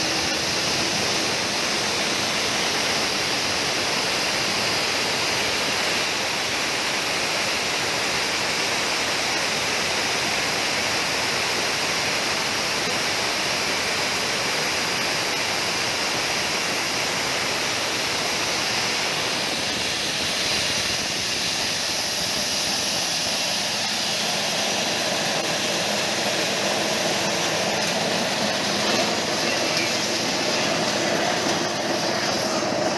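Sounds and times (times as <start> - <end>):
coffee huller machine running: 0.0 - 5.6, 22.3 - 32.9.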